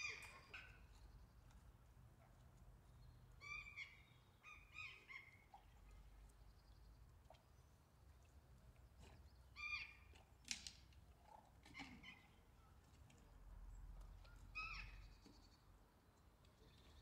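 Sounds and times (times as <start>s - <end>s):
bird calls: 0.0s - 1.3s, 3.0s - 6.2s, 11.6s - 12.8s, 14.1s - 15.6s.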